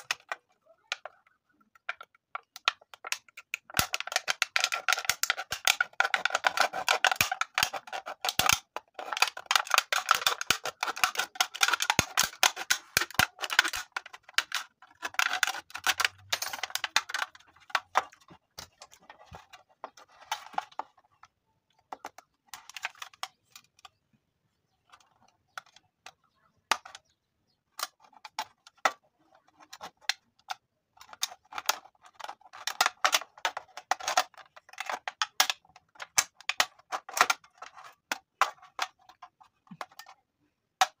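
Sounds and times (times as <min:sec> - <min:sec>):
metal can crackling as cut: 0:03.0 - 0:18.0.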